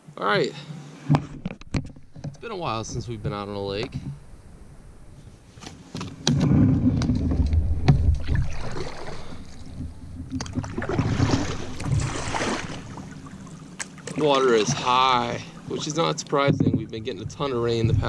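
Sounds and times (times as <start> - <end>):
low bumps: 1.0 - 18.0
paddle knocking against kayak hull: 1.1 - 5.1, 6.0 - 15.3, 16.2 - 18.0
paddle splashing through water: 6.2 - 18.0.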